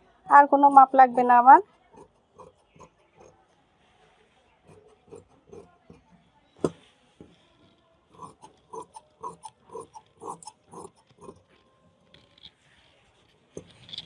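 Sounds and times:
scissors snipping fabric: 4.7s - 6.8s, 8.2s - 11.4s.

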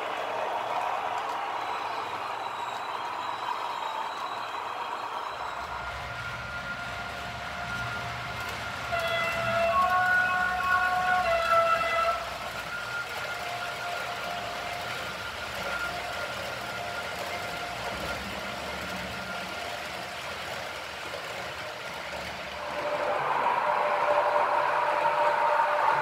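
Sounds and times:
model trains running on track: 0.0s - 26.0s
two-tone train horn: 5.6s - 20.1s, 22.5s - 26.0s.

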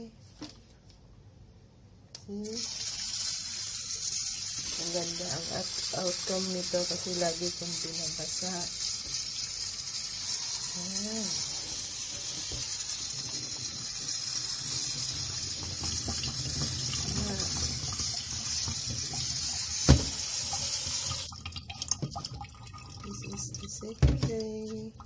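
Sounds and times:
tap water splashing into sink: 12.2s - 24.8s.

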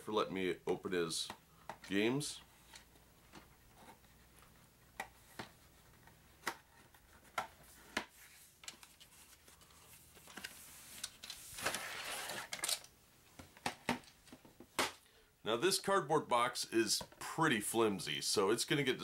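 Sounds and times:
cardboard scraping rustle: 7.6s - 12.6s.

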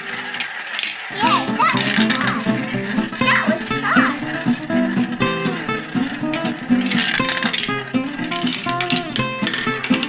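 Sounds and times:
plucked acoustic guitar music: 1.1s - 10.0s.

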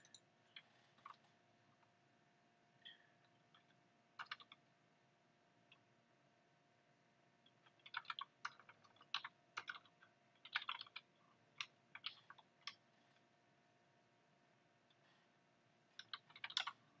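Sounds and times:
computer keyboard typing: 0.0s - 1.3s, 3.2s - 4.6s, 7.4s - 12.8s, 16.0s - 16.8s.

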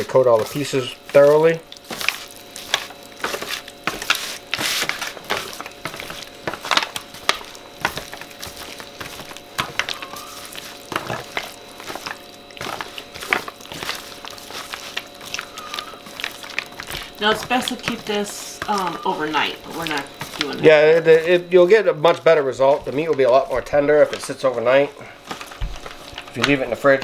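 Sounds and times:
aluminium foil crackling: 0.0s - 27.0s
wet squishing of marinade: 0.0s - 27.0s.

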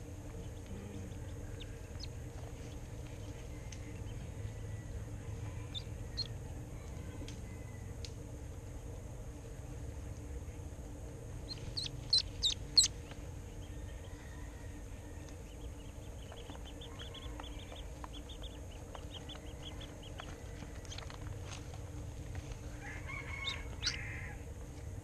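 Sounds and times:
duckling peeping: 0.4s - 4.2s, 5.6s - 6.4s, 11.4s - 13.7s, 15.4s - 21.1s, 23.1s - 24.2s.

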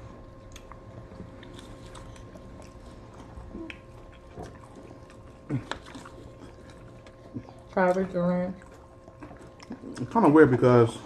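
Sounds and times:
soft chewing: 0.0s - 11.0s
steady low hum: 0.0s - 11.0s.

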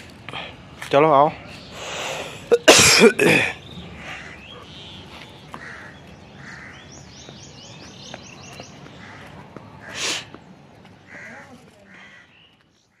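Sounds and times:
loud hiss: 1.7s - 3.2s, 9.9s - 10.3s
crows cawing: 3.2s - 10.4s, 11.0s - 12.9s.

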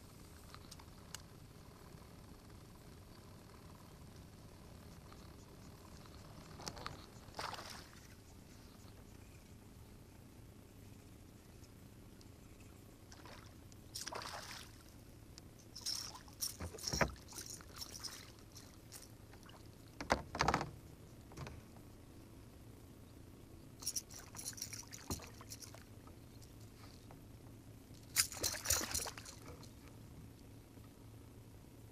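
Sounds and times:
water sloshing: 6.6s - 8.2s, 13.1s - 15.0s, 15.8s - 20.2s, 28.2s - 29.8s.

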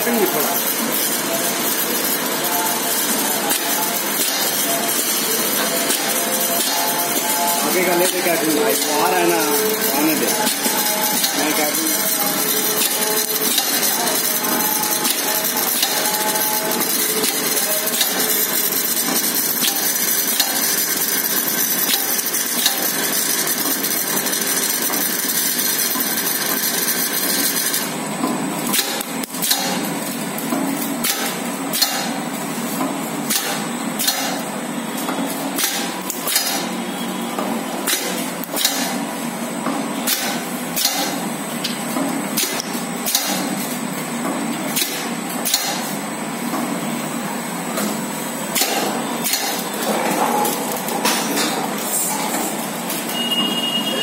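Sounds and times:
machine hum: 0.0s - 43.2s
machine hiss and whir: 0.0s - 54.0s.

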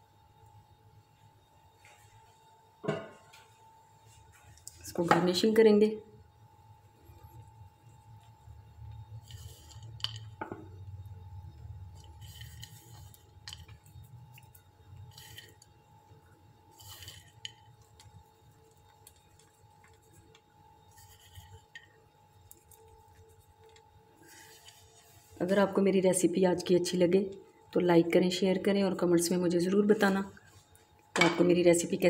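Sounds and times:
faint steady hum: 0.0s - 32.0s
nuts rustling and tapping: 9.2s - 10.9s, 11.9s - 15.8s, 16.8s - 23.9s.

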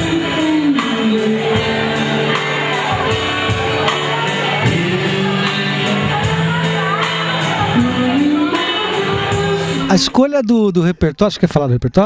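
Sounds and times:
man singing: 0.0s - 2.5s, 4.4s - 6.5s, 7.4s - 10.2s
drum kit cymbal beat: 0.0s - 10.2s
guitar: 0.0s - 12.0s.

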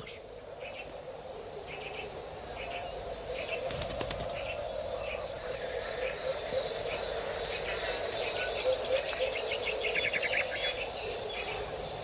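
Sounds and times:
bird wings flapping: 3.5s - 4.6s.

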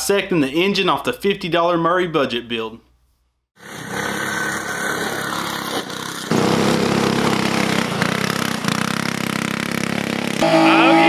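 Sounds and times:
go-kart engine running hard: 3.6s - 11.0s.

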